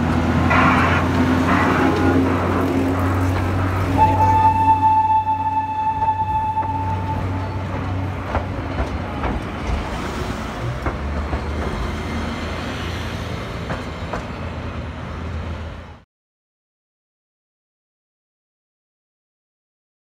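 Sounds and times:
wheels clacking over rail joints: 0.0s - 15.5s
train car rumbling on rails: 0.0s - 16.0s.

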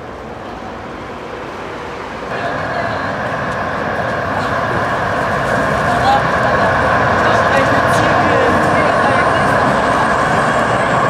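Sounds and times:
street noise: 0.0s - 11.0s
tram rumbling on track: 0.0s - 11.0s.

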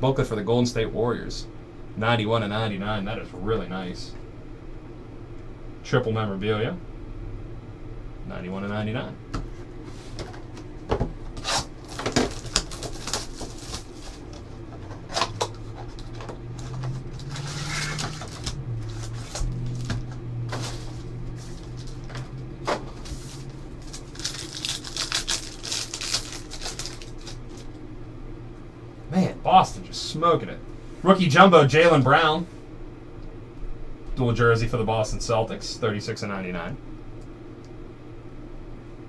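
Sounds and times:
cardboard and wrapper rustling: 10.1s - 27.7s.

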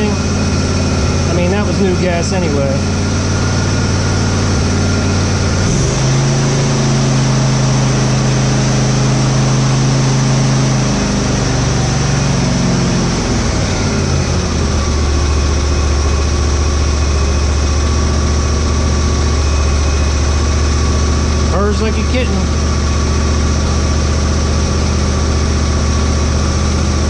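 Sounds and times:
lawn tractor engine running: 0.0s - 27.0s.

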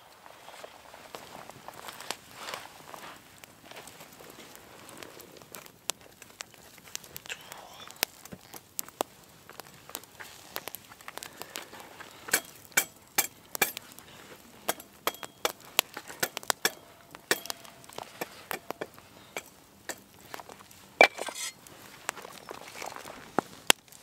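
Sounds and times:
campfire crackling and popping: 0.0s - 24.0s
loud crack of fire: 0.0s - 24.0s
wire grill grate clinking: 14.7s - 20.1s, 21.0s - 21.6s.

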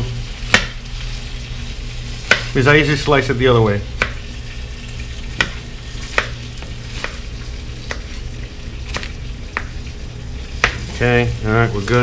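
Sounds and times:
knife slicing onion: 0.4s - 0.8s, 2.2s - 2.6s, 3.9s - 4.3s, 5.3s - 8.3s, 10.5s - 11.0s.

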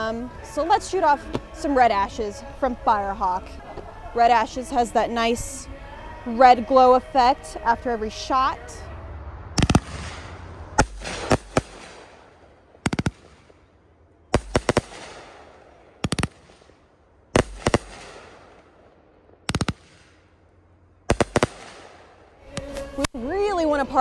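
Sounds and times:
fireworks bangs: 9.2s - 22.9s
fireworks hiss: 9.6s - 12.3s.

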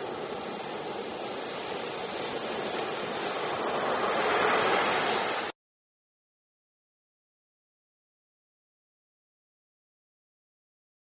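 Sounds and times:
ocean waves breaking on beach: 0.0s - 5.6s.

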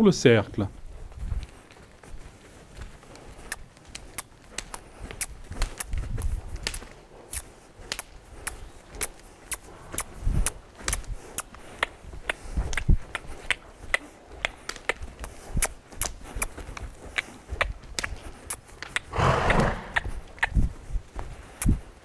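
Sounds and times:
horse hooves clicking on sand: 0.0s - 22.0s
dull hoof thuds: 0.6s - 22.0s.

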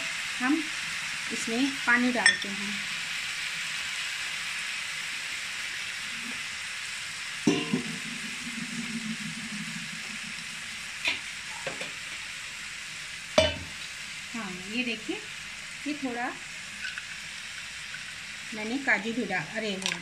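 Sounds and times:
rice sizzling in a pan: 0.0s - 20.0s
utensil knocking against pan: 7.5s - 8.0s, 13.4s - 13.8s.

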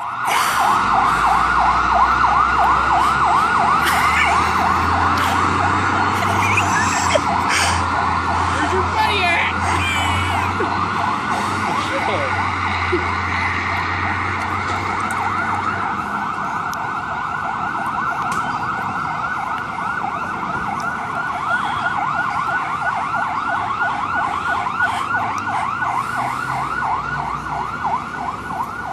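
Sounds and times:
fire engine siren yelping: 0.0s - 28.9s.

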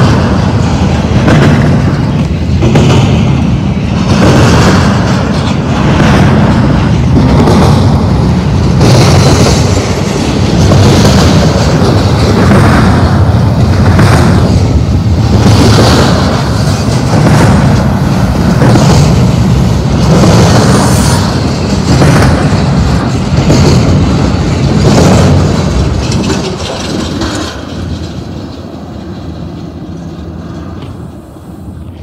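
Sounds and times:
freight train wheels clattering: 0.0s - 32.0s.

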